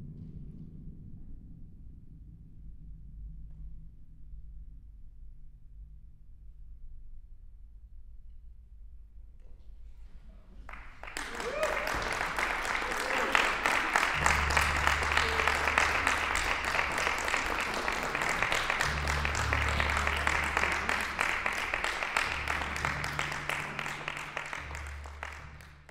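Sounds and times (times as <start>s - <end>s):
audience applauding: 10.7s - 25.9s.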